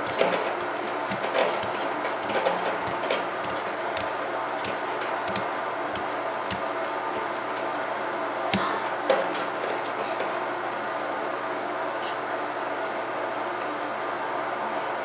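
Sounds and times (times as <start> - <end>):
baby jumper clicking: 0.0 - 6.7.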